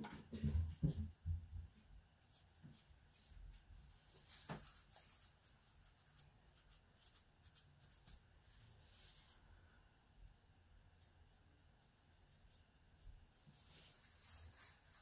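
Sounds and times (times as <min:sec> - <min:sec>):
brush scratching on paper: 0:02.2 - 0:09.6, 0:10.8 - 0:15.0.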